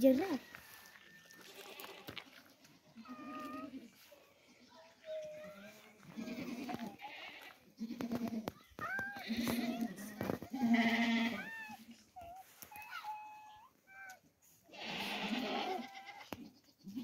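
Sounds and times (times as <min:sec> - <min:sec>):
goats bleating: 0:01.4 - 0:04.0, 0:05.4 - 0:12.1, 0:14.7 - 0:17.0.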